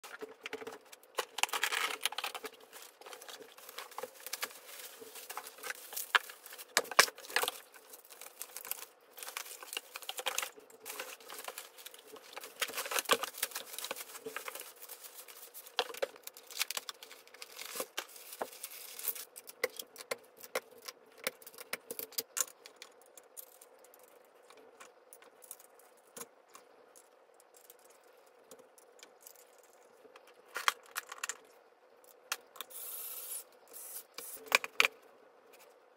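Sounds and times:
plastic parts clicking and clattering: 0:00.0 - 0:26.3, 0:28.5 - 0:31.5
packaging rustling and tearing: 0:00.1 - 0:19.9.

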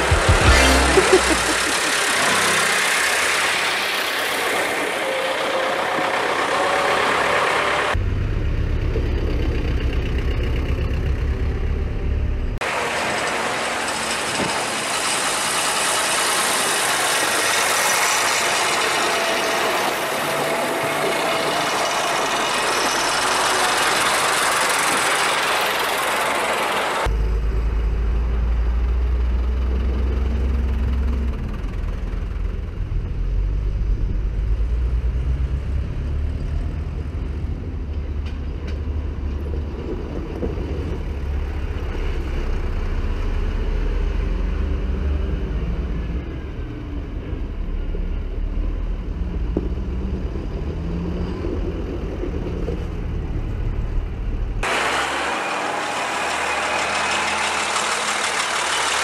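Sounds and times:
tractor engine running steadily: 0:00.0 - 0:34.0, 0:51.7 - 0:59.0
tractors driving past: 0:00.0 - 0:59.0.

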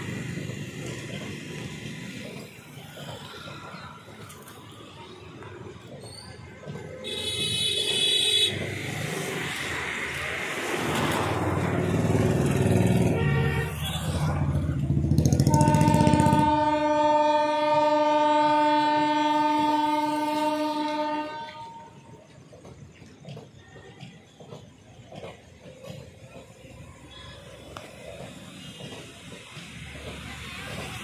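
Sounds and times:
train rumbling into station: 0:00.0 - 0:31.0
long locomotive horn blast: 0:07.0 - 0:08.7, 0:12.4 - 0:22.2.

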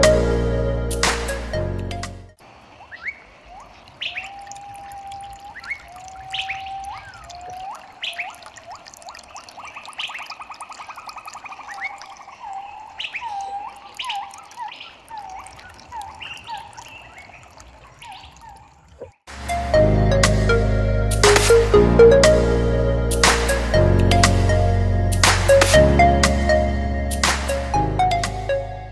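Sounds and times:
electronic music: 0:00.0 - 0:02.4, 0:19.3 - 0:28.9
birds chirping and calling: 0:02.5 - 0:19.1.

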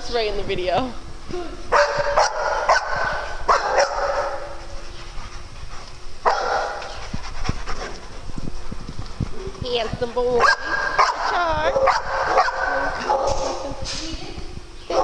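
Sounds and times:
dogs barking: 0:01.7 - 0:05.5, 0:06.2 - 0:07.1, 0:10.4 - 0:13.6.

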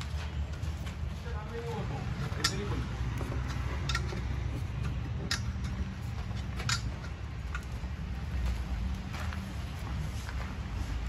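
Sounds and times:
sharp metallic clicks: 0:02.1 - 0:07.8.

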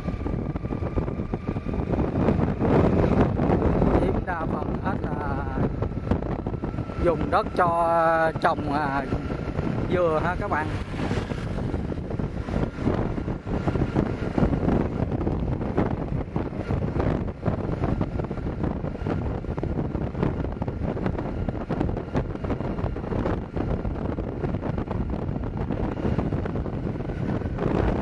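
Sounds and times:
motorbike engine: 0:00.0 - 0:28.0
road noise: 0:00.0 - 0:28.0
wind rushing over microphone: 0:00.0 - 0:28.0.

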